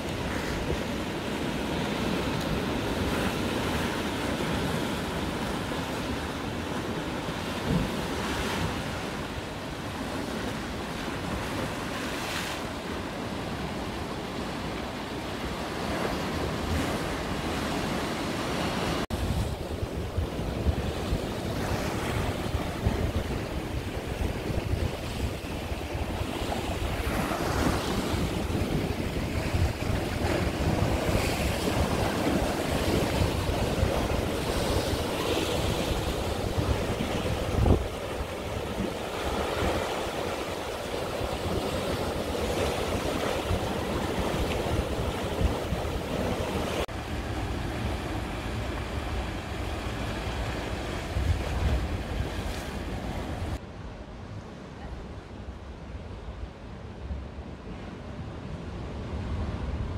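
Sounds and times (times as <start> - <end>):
waves breaking on rocky shore: 0.0 - 53.6
wind rumbling on microphone: 18.8 - 59.9.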